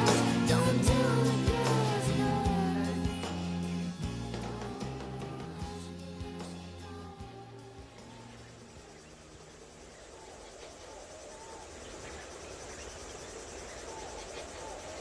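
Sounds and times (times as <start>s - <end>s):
crickets chirping: 0.0s - 15.0s
small animal gliding calls: 7.9s - 15.0s.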